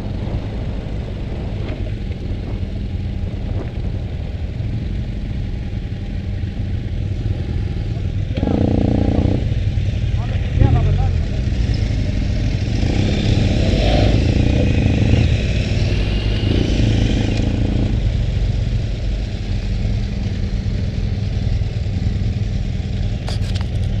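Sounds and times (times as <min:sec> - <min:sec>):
motorcycle engine running: 0:00.0 - 0:24.0
road noise on gravel: 0:00.0 - 0:24.0.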